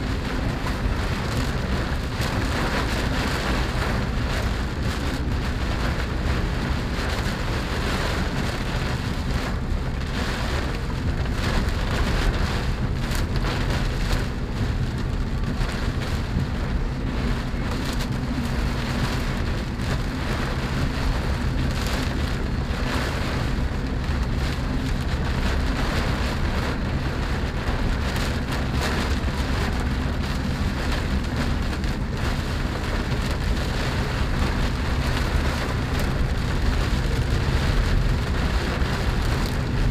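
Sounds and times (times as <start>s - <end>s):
car rumbling on road: 0.0s - 39.9s
rain pattering on car roof: 0.0s - 39.9s.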